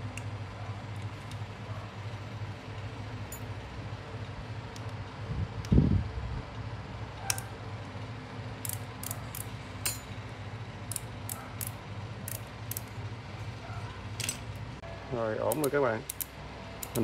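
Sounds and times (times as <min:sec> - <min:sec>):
light metallic tool clicks: 0:08.6 - 0:10.1, 0:15.5 - 0:17.0.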